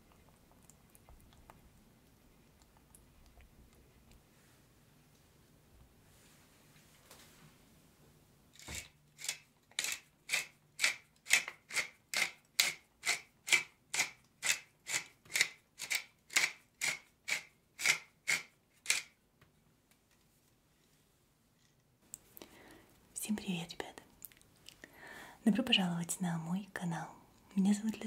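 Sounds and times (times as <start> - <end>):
pepper mill grinding: 8.5 - 19.1.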